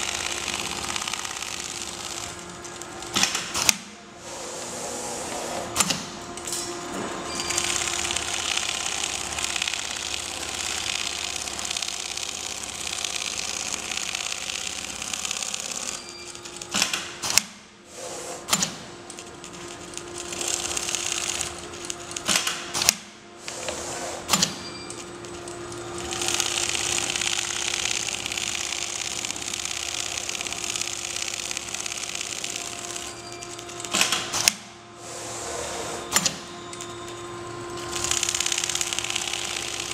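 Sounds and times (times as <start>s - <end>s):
steady mechanical hum: 0.0s - 39.9s
sharp machine clicks: 7.4s - 17.5s, 26.0s - 34.6s.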